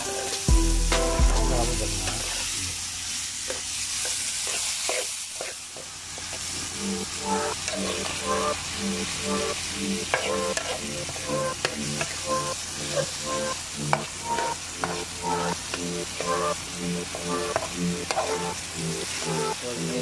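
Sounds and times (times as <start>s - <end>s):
vegetables sizzling in oil: 0.0s - 20.0s
metal spatula scraping and stirring: 3.5s - 5.6s, 10.1s - 12.1s, 17.5s - 18.4s.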